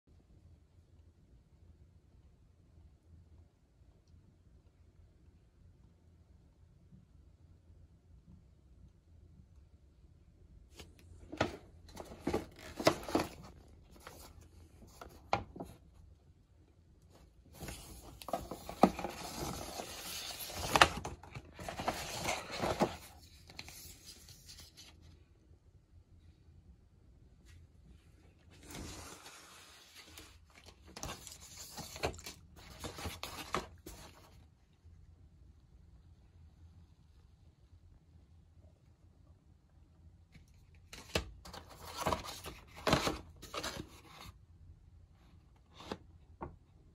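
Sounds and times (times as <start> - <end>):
paper packaging rustling: 10.8 - 15.8, 17.1 - 25.0, 28.6 - 34.4, 41.0 - 44.3
paper bag rustling and crackling: 11.3 - 15.7, 17.5 - 23.8.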